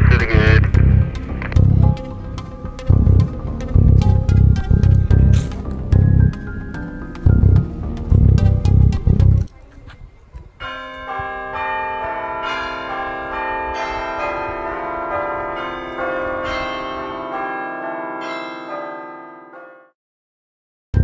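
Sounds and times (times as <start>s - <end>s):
bells ringing: 10.6s - 19.9s.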